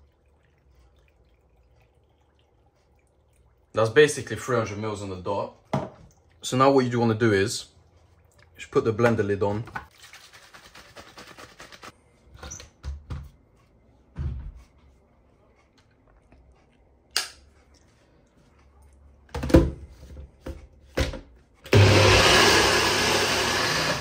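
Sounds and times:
blender running: 21.7 - 24.0.

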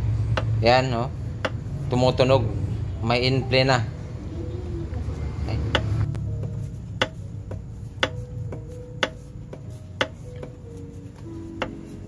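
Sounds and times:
engine crankshaft knocking: 0.0 - 1.7.

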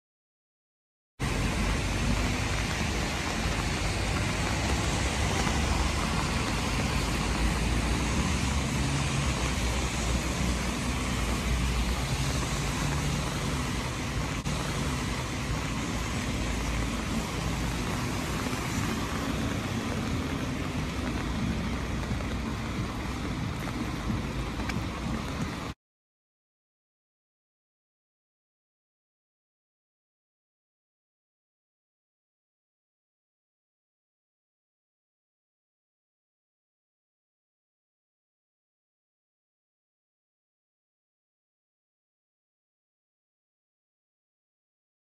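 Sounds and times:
city traffic on wet roads: 1.2 - 25.8.

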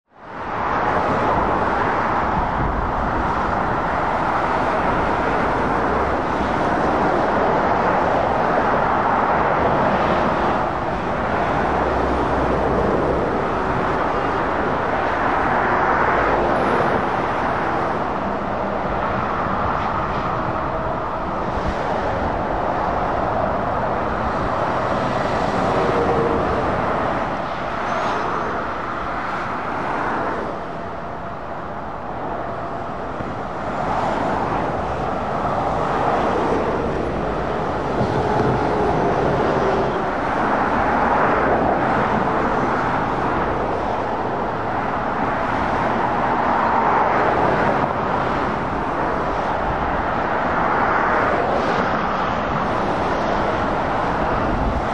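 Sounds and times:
road traffic passing at speed: 0.0 - 54.9.

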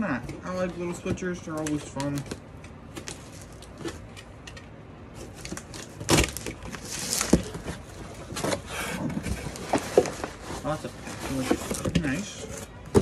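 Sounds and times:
cardboard scraping: 5.1 - 13.0
packing tape ripping: 5.2 - 7.7.

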